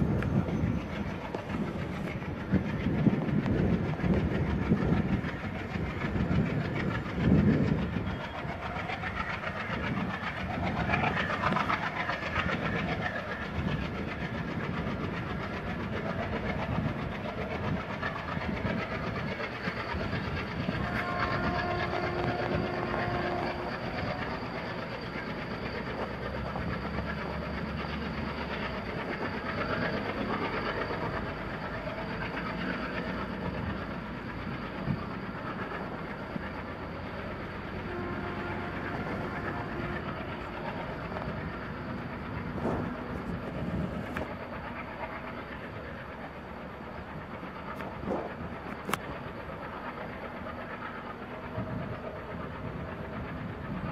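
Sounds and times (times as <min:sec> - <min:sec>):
train rumble: 0:00.0 - 0:53.9
train wheels clattering over rails: 0:00.0 - 0:53.9
locomotive horn: 0:20.7 - 0:24.2, 0:37.7 - 0:40.7.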